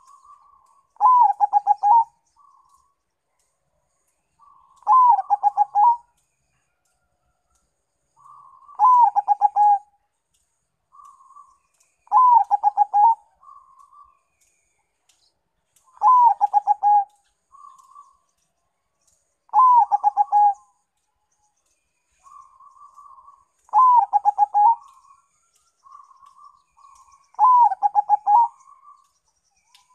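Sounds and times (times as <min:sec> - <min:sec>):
dove cooing song: 0:00.0 - 0:02.9, 0:04.4 - 0:06.2, 0:08.2 - 0:09.9, 0:10.9 - 0:14.2, 0:15.8 - 0:18.2, 0:19.5 - 0:20.8, 0:22.2 - 0:29.9
soft murmured dove notes: 0:00.0 - 0:29.9.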